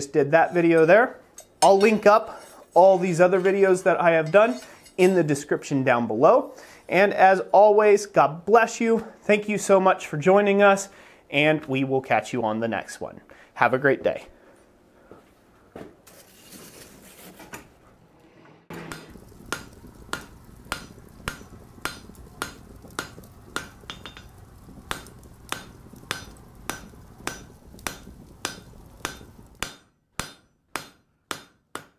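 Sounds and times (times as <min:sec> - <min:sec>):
faint workshop background: 0:00.0 - 0:31.9
hammer striking anvil: 0:18.7 - 0:22.0, 0:23.6 - 0:31.9.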